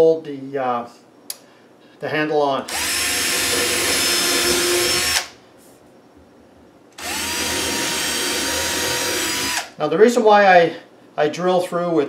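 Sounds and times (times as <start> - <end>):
cordless drill whining: 2.7 - 5.4, 7.0 - 9.8.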